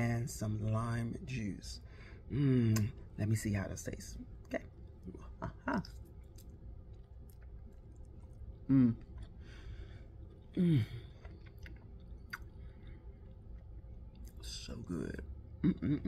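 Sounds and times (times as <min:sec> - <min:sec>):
person humming mmm: 0:02.3 - 0:02.9, 0:08.6 - 0:09.1, 0:10.5 - 0:11.1, 0:15.6 - 0:16.0
person chewing noodles: 0:04.8 - 0:14.4.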